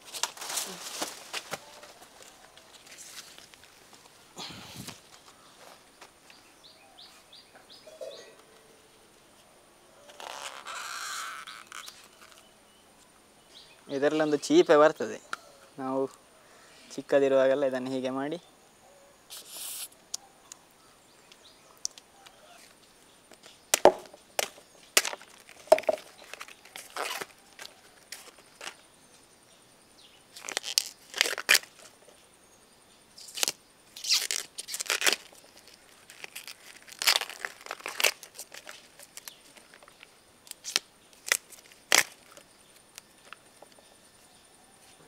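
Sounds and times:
banana flower bracts tearing: 0.0s - 3.8s, 10.0s - 12.5s, 23.8s - 28.8s, 30.3s - 31.9s, 33.2s - 43.4s.

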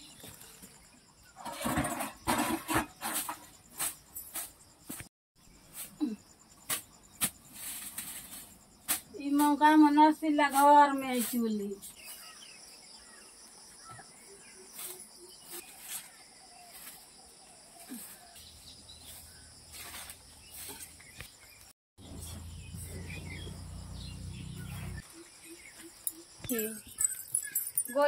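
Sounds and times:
insects chirring: 0.0s - 28.0s
broom sweeping earth: 3.0s - 12.4s, 14.5s - 23.4s.

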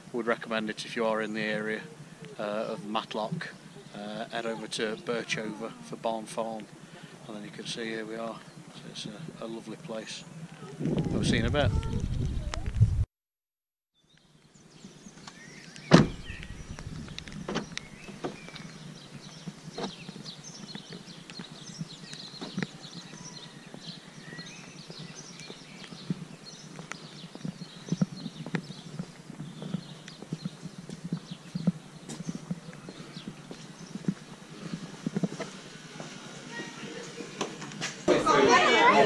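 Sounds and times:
outdoor ambience: 0.0s - 13.1s, 14.0s - 39.0s
footsteps: 15.1s - 39.0s
car door slamming: 15.9s - 16.3s.

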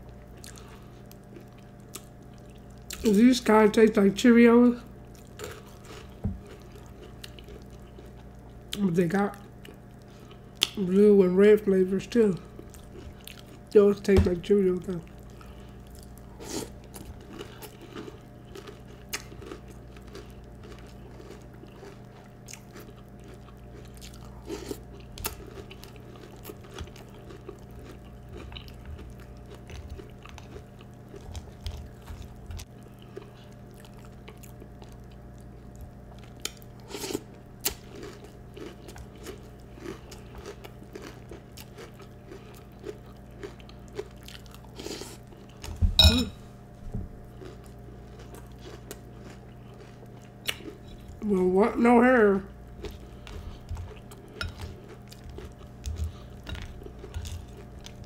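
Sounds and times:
chewing and crunching cereal: 0.0s - 4.0s, 4.7s - 11.2s, 11.9s - 14.1s, 14.7s - 45.8s, 47.2s - 58.0s
low hum: 45.8s - 47.4s.

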